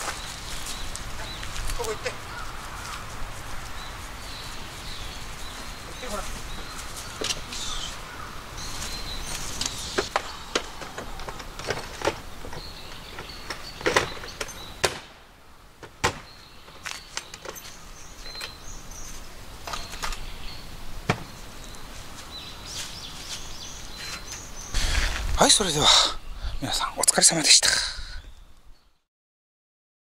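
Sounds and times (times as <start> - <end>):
birds chirping: 0.0 - 29.1
knocks and clunks of gear packing: 10.0 - 14.9.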